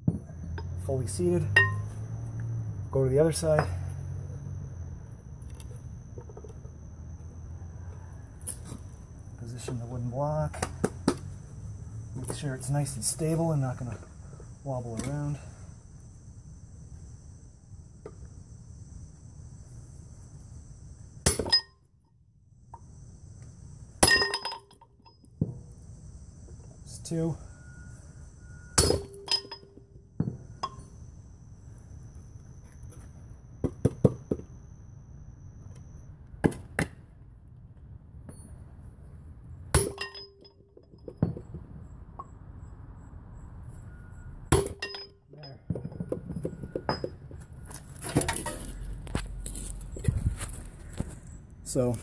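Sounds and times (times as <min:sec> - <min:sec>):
metal-on-metal clanks: 0:01.5 - 0:01.9, 0:24.0 - 0:25.3, 0:28.8 - 0:30.9, 0:39.7 - 0:42.3, 0:44.5 - 0:47.4.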